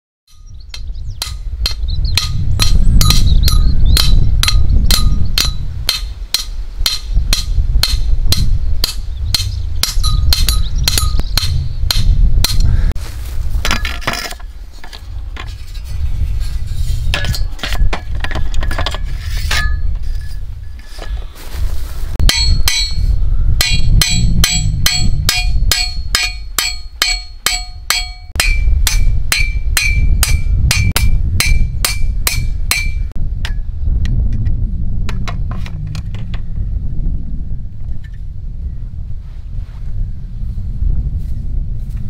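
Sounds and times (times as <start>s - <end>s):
hammer striking metal stake: 0.3s - 12.7s, 17.1s - 20.0s, 22.2s - 33.6s
low rumble: 21.5s - 26.2s, 28.4s - 42.0s.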